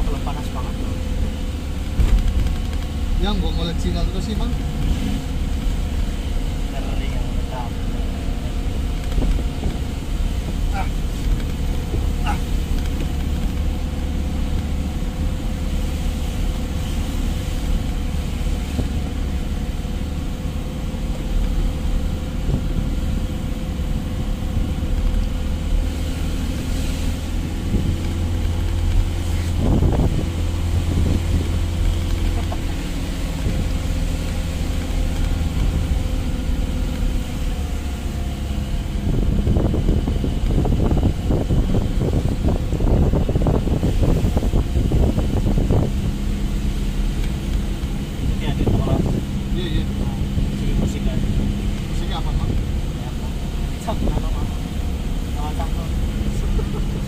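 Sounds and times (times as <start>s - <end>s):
truck engine running: 0.0s - 57.0s.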